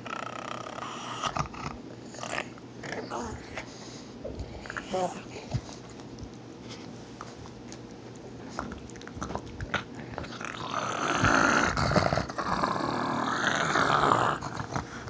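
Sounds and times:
dog growling: 0.0s - 3.7s, 8.6s - 15.0s.

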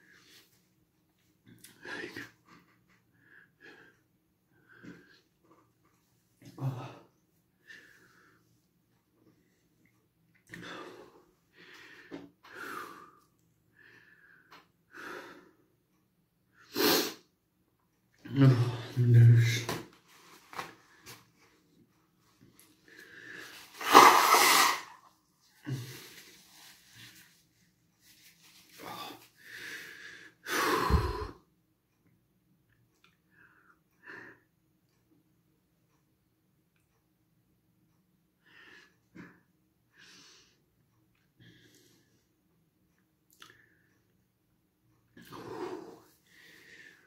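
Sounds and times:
man blowing his nose: 16.7s - 17.2s, 23.6s - 25.1s
man gasping for breath: 28.7s - 31.4s.

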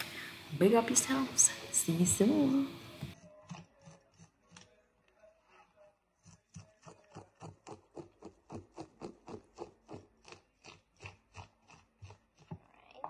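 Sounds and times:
knife scraping fish scales: 3.2s - 4.9s, 6.2s - 12.5s.

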